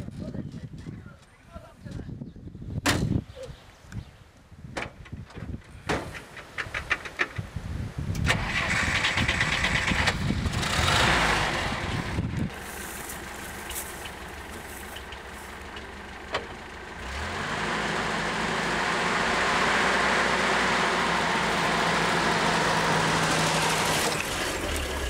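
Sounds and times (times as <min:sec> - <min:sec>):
engine cranking and starting: 0:08.2 - 0:17.9, 0:22.5 - 0:25.0
engine idling: 0:08.4 - 0:19.7.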